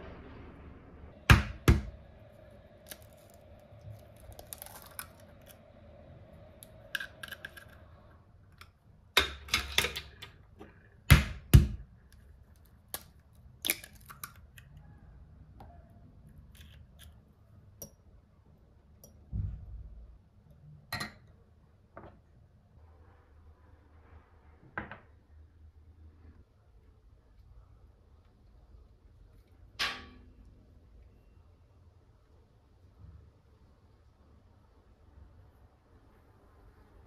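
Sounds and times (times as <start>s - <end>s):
eggshells cracking: 2.6s - 5.8s, 6.6s - 8.0s, 12.4s - 14.6s.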